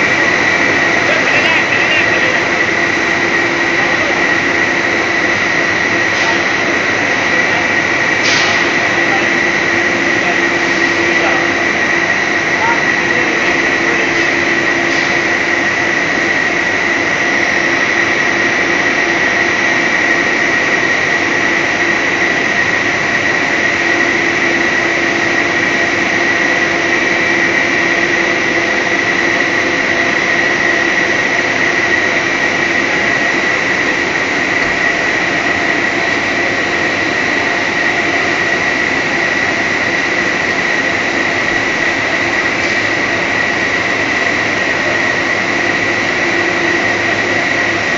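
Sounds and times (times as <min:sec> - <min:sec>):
factory machine noise: 0:00.0 - 0:47.9
high machine whine: 0:00.0 - 0:47.9.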